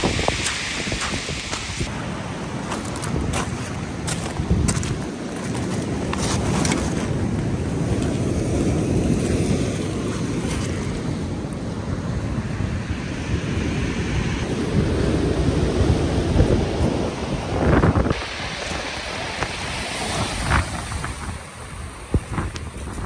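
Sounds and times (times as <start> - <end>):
surf breaking on pebble beach: 0.0 - 10.9
wind buffeting microphone: 0.0 - 23.0.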